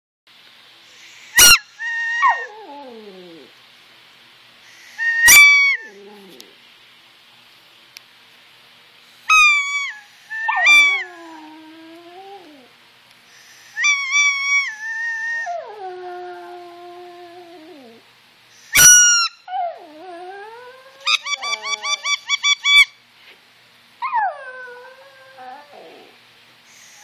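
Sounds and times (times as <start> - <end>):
dog howling: 1.5 - 3.5, 5.0 - 6.6, 9.3 - 12.7, 13.8 - 18.0, 19.5 - 22.1, 24.0 - 26.2
squeaky toy squeaking: 18.8 - 19.4.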